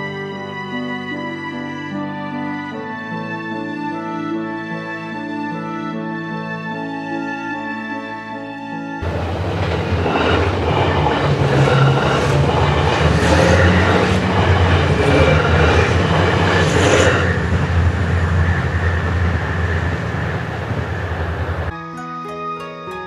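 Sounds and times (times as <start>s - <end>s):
diesel train engine drone: 9.0s - 21.7s
wheels clacking over rail joints: 9.0s - 21.7s.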